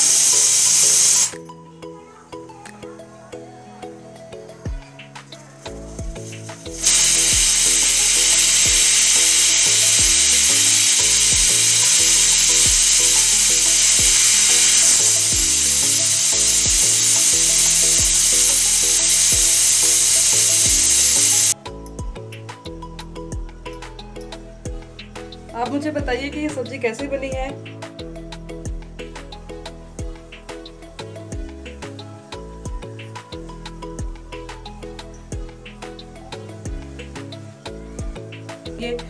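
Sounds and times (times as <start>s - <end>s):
pressure cooker whistle hissing: 0.0s - 1.4s, 6.5s - 21.6s.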